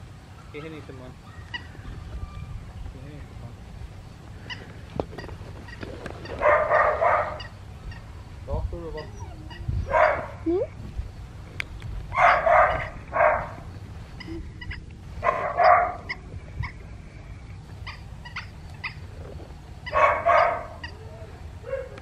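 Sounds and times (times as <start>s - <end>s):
puppy barking: 6.4s - 7.5s, 8.9s - 10.5s, 12.1s - 13.6s, 15.2s - 16.2s, 19.9s - 21.0s, 21.6s - 22.0s.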